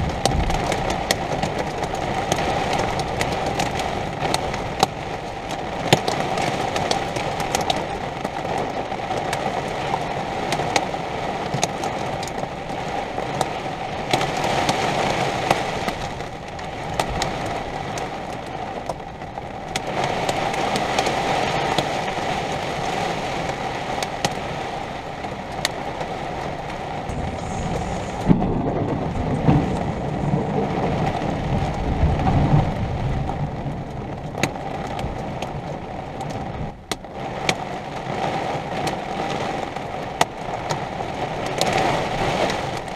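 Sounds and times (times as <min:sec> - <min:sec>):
thunder rumble: 0:00.0 - 0:05.8, 0:26.2 - 0:36.8
heavy rain hissing: 0:00.0 - 0:11.5, 0:19.9 - 0:34.2
raindrops ticking on a surface: 0:00.0 - 0:42.9
steady hum: 0:27.1 - 0:31.2.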